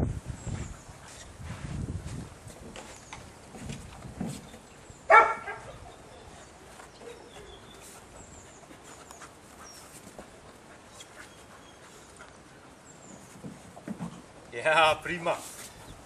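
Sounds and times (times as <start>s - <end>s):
dog barking: 5.1s - 5.7s
faint rustling: 5.6s - 16.0s.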